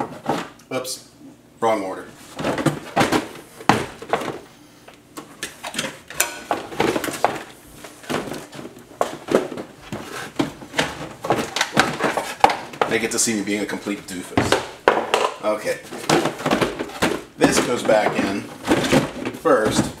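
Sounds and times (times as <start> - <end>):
plastic pieces knocking together: 5.7 - 13.0, 14.4 - 20.0
plastic scraping: 6.5 - 13.2, 14.4 - 20.0.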